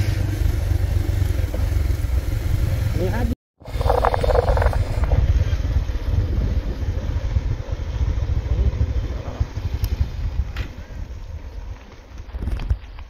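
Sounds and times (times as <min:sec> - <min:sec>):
motorcycle engine running: 0:00.0 - 0:12.2
wind rumbling on microphone: 0:03.6 - 0:13.0.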